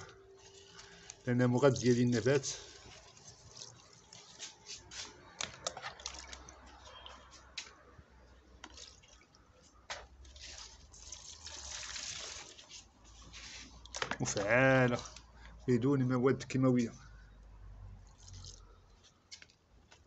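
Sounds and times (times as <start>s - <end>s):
liquid pouring onto soil: 0.0s - 6.7s, 8.6s - 9.4s, 10.2s - 15.0s, 18.1s - 18.7s.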